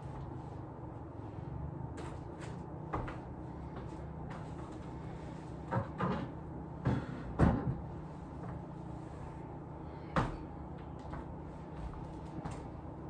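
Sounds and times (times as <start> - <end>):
objects knocking on furniture and floor: 5.7 - 7.8.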